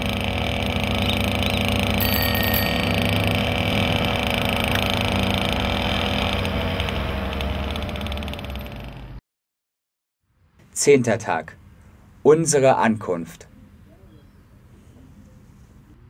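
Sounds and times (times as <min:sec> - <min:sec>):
moped engines running: 0:00.0 - 0:09.2
road and wind noise: 0:02.8 - 0:09.2.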